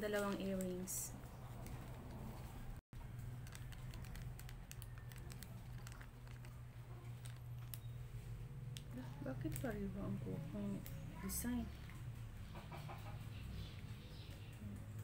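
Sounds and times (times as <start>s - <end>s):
plastic bags crinkling: 3.2s - 7.9s.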